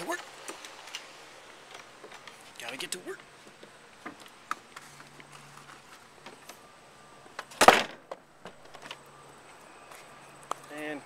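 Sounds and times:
loud short thump: 0:07.6 - 0:08.6.

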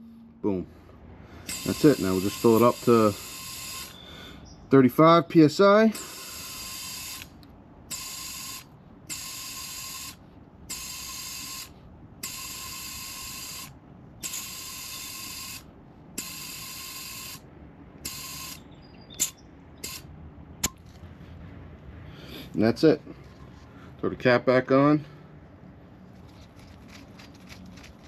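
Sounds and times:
compressed air hissing into tire: 0:01.4 - 0:04.3, 0:05.9 - 0:07.3.

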